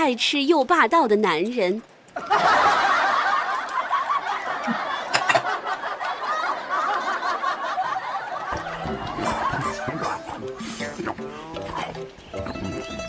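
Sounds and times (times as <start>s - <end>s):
people giggling: 2.2s - 11.9s.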